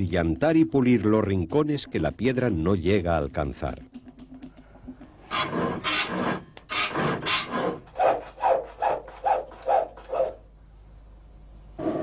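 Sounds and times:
hand file rasping on metal: 0:05.3 - 0:10.4.

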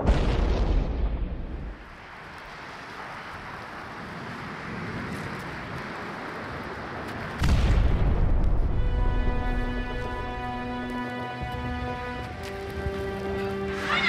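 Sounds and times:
deep rumbling explosion: 0:00.0 - 0:01.8, 0:07.4 - 0:09.7.

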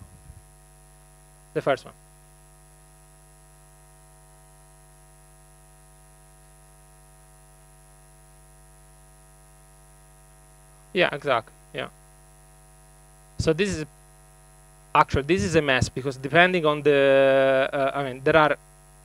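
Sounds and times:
electrical mains hum: 0:00.0 - 0:19.0
man speaking: 0:01.6 - 0:01.9, 0:11.0 - 0:11.9, 0:13.4 - 0:13.9, 0:15.0 - 0:18.6.

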